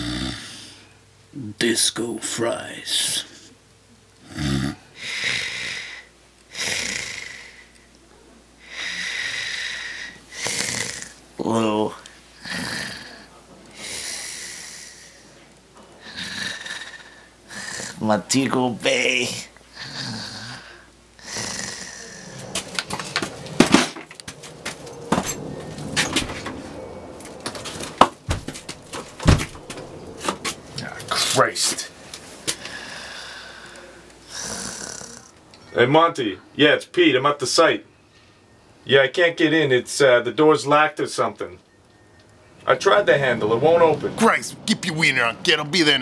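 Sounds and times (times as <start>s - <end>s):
man snoring: 0.0s - 0.8s, 4.2s - 7.8s, 8.6s - 11.2s, 12.4s - 15.2s, 16.0s - 18.0s, 19.3s - 22.7s, 32.6s - 35.4s
hissing breaths: 4.4s - 7.9s, 8.6s - 11.2s, 12.0s - 18.0s, 19.7s - 23.2s, 32.0s - 35.4s.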